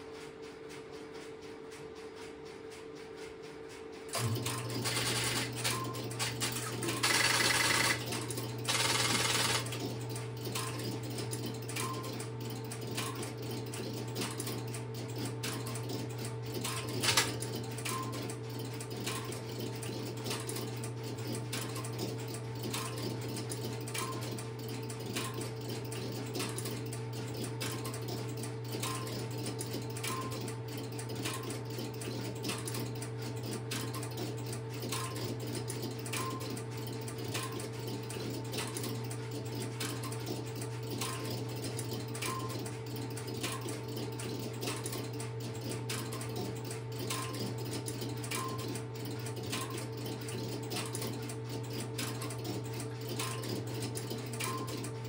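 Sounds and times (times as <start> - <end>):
fast relay clicking: 0.7 - 55.0
regular ticking: 7.0 - 10.8.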